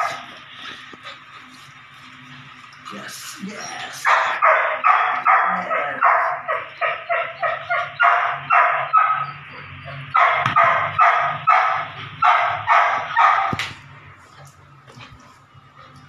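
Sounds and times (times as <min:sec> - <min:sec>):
puppy yipping: 0:04.1 - 0:13.6.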